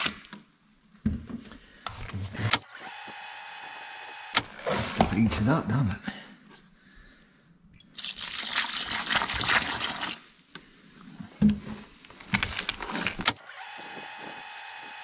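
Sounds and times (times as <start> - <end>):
drill mixing cement in bucket: 2.4 - 5.1, 13.2 - 15.0.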